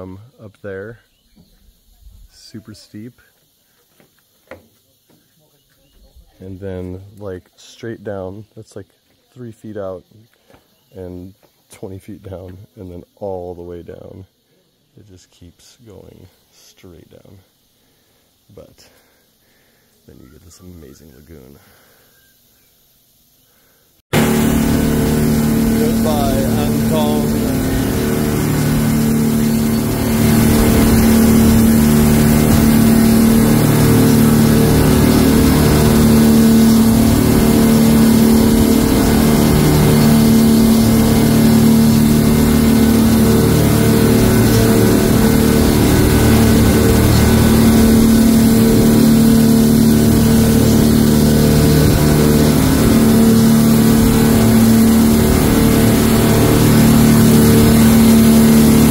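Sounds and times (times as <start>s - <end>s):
engine running steadily: 24.1s - 58.9s.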